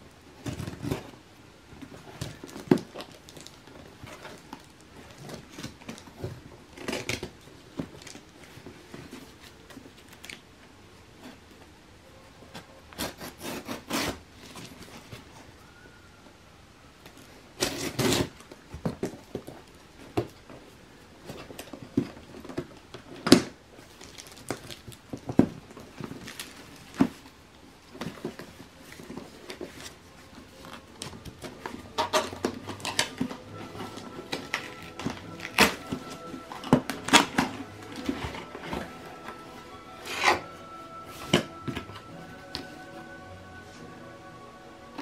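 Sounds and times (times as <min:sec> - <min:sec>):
soft background music: 0:28.0 - 0:45.0.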